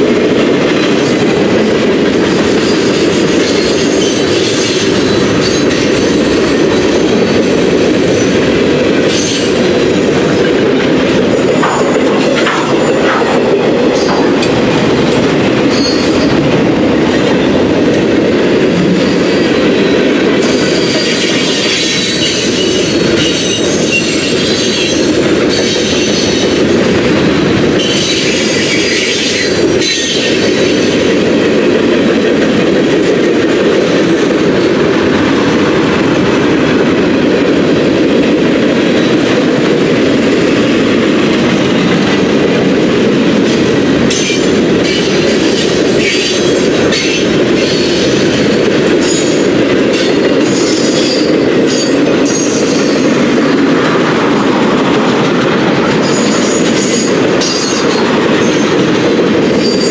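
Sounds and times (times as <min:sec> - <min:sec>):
train wheels rumbling on rail: 0:00.0 - 0:59.9
high-pitched wheel squeals: 0:15.7 - 0:16.3.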